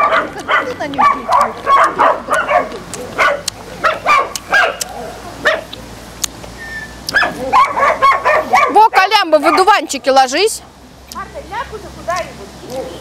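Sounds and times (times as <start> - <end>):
dogs barking: 0.0 - 5.8, 7.1 - 10.0.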